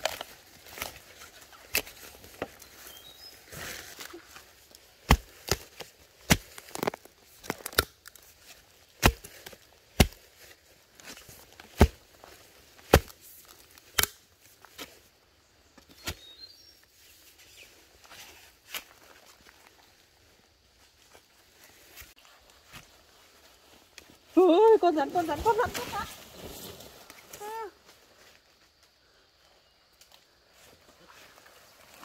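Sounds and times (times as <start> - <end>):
metal blade chopping into soil: 5.0 - 7.9, 9.0 - 10.2.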